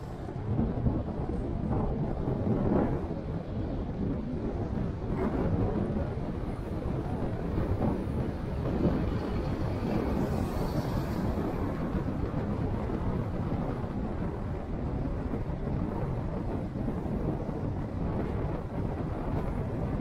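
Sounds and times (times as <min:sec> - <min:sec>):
road noise: 0:00.0 - 0:20.0
wind noise: 0:00.0 - 0:20.0.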